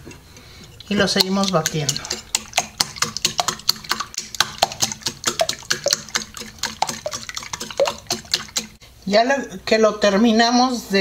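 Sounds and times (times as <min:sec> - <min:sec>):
liquid egg sloshing: 0:00.0 - 0:08.8
utensil clicking against glass bowl: 0:00.8 - 0:08.8.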